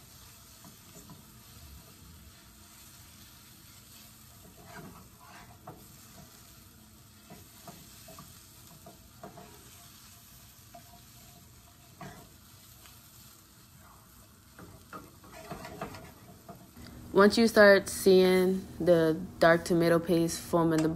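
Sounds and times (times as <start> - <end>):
vegetables sizzling in a frying pan: 0.0 - 20.9
spatula scraping and knocking: 3.6 - 6.4, 7.2 - 12.4, 13.8 - 16.8.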